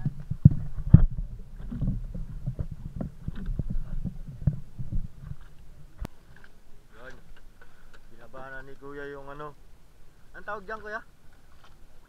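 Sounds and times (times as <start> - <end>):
knocks and thumps: 0.0 - 6.1
water against boat hull: 0.0 - 9.5, 10.4 - 12.0.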